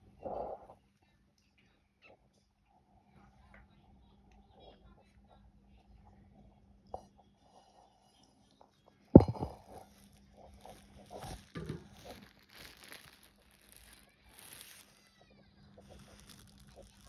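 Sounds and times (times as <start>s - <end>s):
sharp knock: 9.2s - 9.6s
plastic wrap crinkling: 9.2s - 15.2s, 15.8s - 17.0s.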